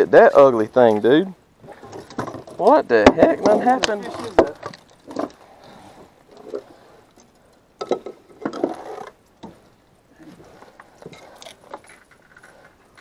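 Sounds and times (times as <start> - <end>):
fishing tackle clicking and rustling: 10.3 - 13.0.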